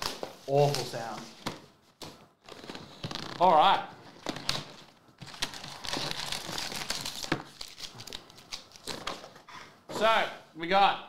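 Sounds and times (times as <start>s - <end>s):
plastic and foil packaging crinkling: 0.0s - 1.3s, 2.4s - 9.4s.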